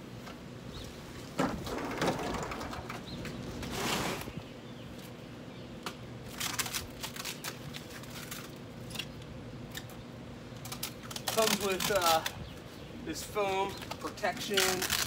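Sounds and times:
packing material rustling: 6.3 - 8.6, 10.6 - 12.3, 14.1 - 15.0.

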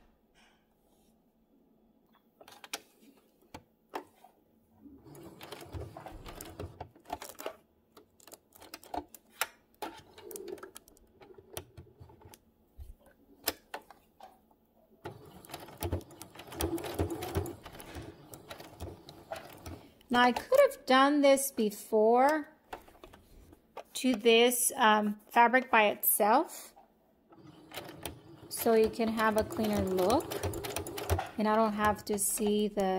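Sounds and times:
sewing machine stitching: 4.9 - 7.5, 15.0 - 20.6, 27.3 - 32.9
sewing machine clicks: 15.0 - 20.6, 27.4 - 32.9.

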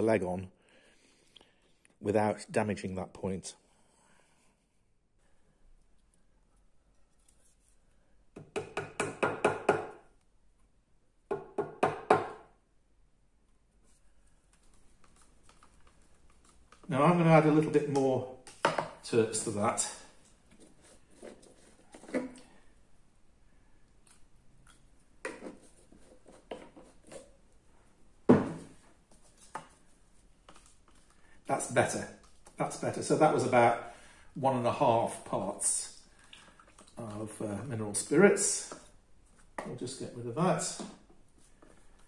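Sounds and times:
hammer tapping on wood: 8.4 - 10.0, 11.3 - 12.4
bottles knocking on wooden bench: 28.3 - 28.7.

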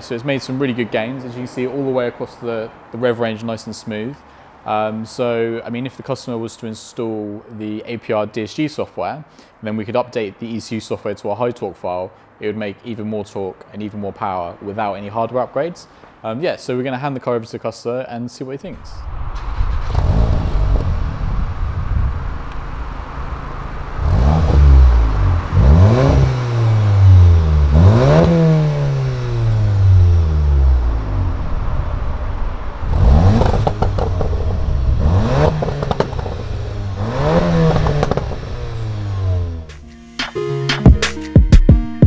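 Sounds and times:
car engine idling and revving: 19.2 - 39.8.

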